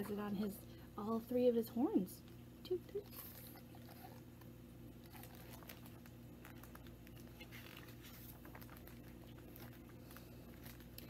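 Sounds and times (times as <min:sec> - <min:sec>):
steady low hum: 0:00.0 - 0:11.0
book pages turning: 0:05.1 - 0:11.0.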